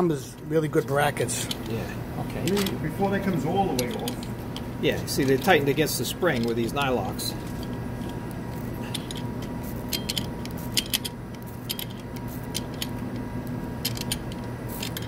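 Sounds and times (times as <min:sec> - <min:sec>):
electrical hum: 0:00.0 - 0:15.0
wrench clicking on metal nuts: 0:08.9 - 0:13.0, 0:13.8 - 0:15.0.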